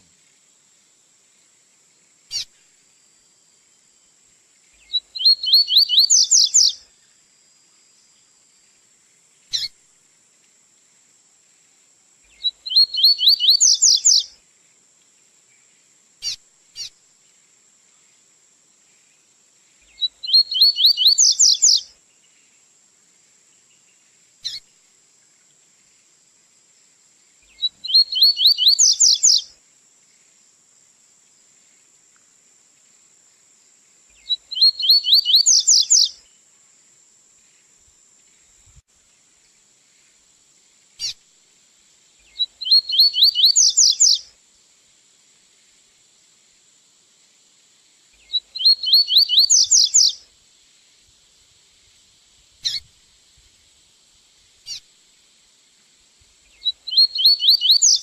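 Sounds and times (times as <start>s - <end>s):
faint high hiss: 0.0s - 58.0s
bird song of repeated bright notes: 2.3s - 3.3s, 4.6s - 7.2s, 9.4s - 9.8s, 12.3s - 14.3s, 15.5s - 17.0s, 19.2s - 22.7s, 23.5s - 24.8s, 27.4s - 29.5s, 34.1s - 36.4s, 42.2s - 44.3s, 48.1s - 50.2s, 52.6s - 52.9s, 56.4s - 58.0s.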